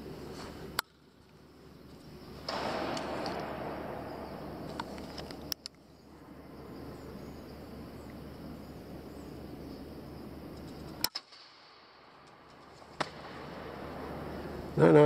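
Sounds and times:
steady low hum: 0.0 - 15.0
air rifle shot: 2.4 - 5.5.

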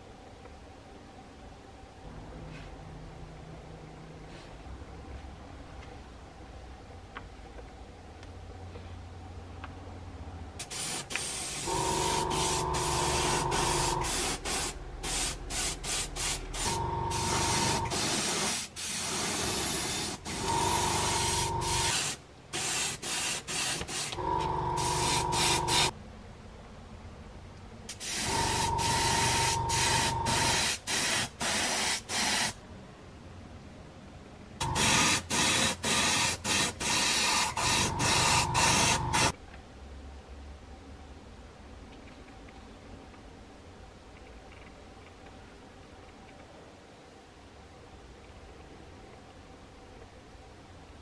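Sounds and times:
airbrush hissing: 10.6 - 25.9, 27.9 - 32.6, 34.6 - 39.3
airbrush whistling tone: 10.7 - 23.8, 24.7 - 25.9, 28.0 - 32.5, 34.6 - 39.3.

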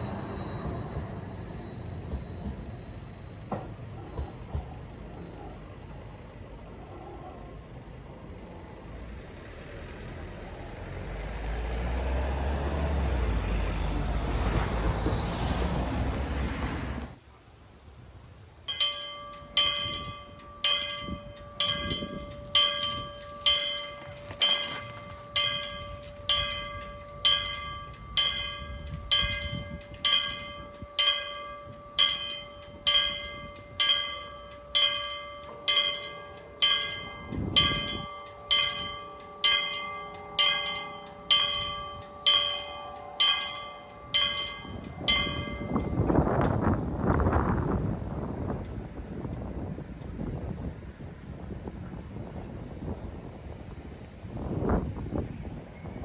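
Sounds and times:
level-crossing warning bells: 0.0 - 16.3, 18.5 - 50.7
vehicle passing rumble: 7.4 - 17.2.

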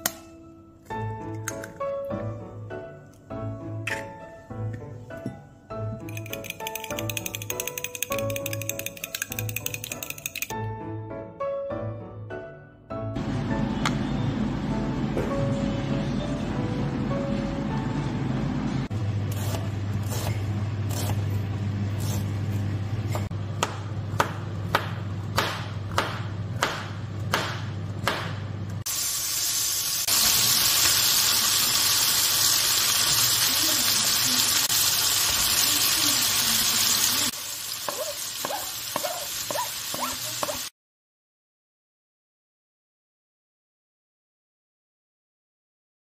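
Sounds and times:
vegetables sizzling in oil: 28.9 - 40.7.

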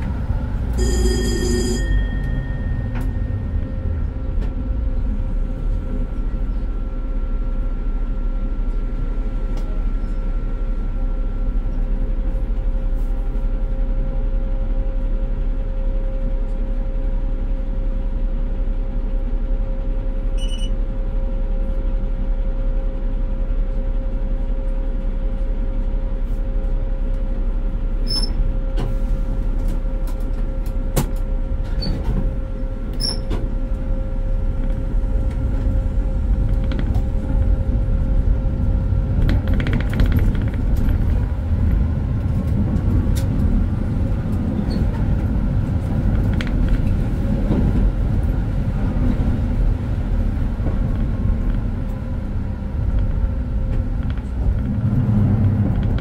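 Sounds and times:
constant whine: 0.0 - 56.0
tram wheels rumbling: 0.0 - 56.0.

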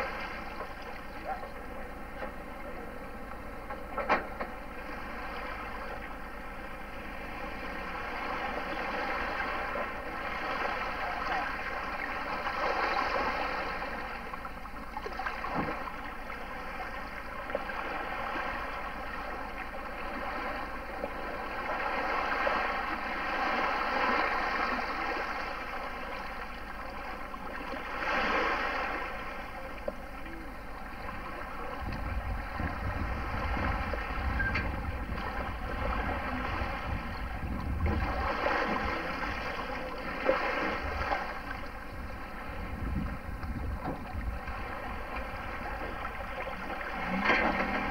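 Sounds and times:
small waves lapping: 0.0 - 47.9
steady hum: 0.0 - 47.9
wind buffeting microphone: 31.5 - 39.8, 40.7 - 47.0.

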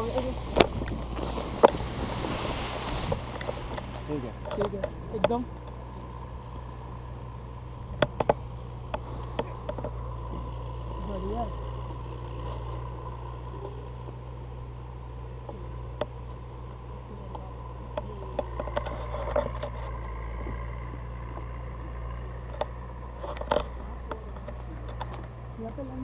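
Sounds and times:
wind on camera microphone: 0.3 - 5.1.

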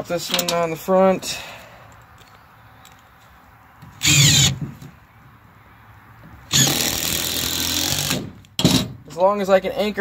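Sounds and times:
cordless drill driving screws: 4.0 - 4.6, 6.5 - 8.8.

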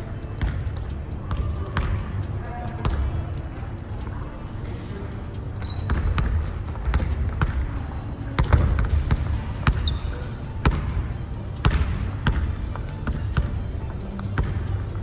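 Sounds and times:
sneaker squeaks: 5.6 - 7.7, 9.7 - 10.9.

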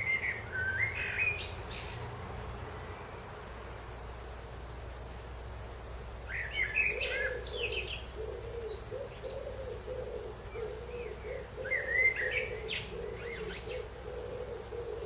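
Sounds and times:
songbird warbling: 0.0 - 2.1, 6.2 - 15.0.

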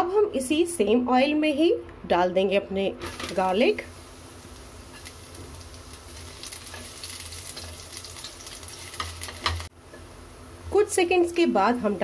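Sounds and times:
garlic sizzling in hot oil: 3.0 - 12.0.

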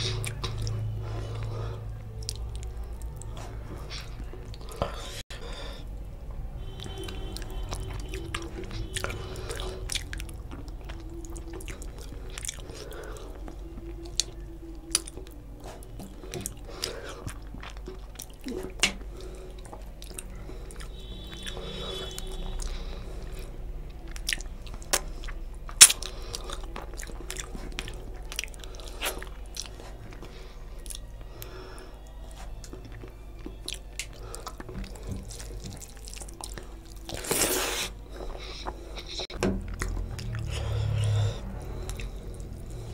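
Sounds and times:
chewing with wet smacks: 0.0 - 5.5, 6.1 - 42.9
sharp mouth clicks: 24.2 - 26.7.

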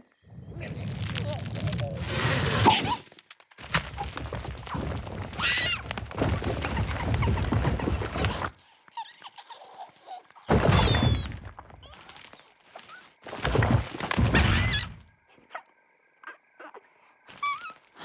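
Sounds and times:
high wavering squeaky cries: 15.5 - 17.9.

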